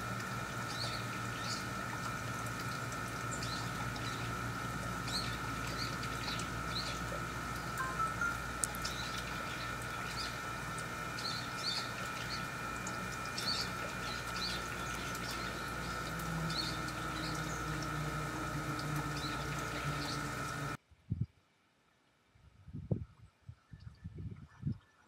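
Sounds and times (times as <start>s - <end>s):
high-pitched hum: 0.0s - 20.8s
small birds chirping: 0.6s - 1.8s, 3.2s - 20.8s.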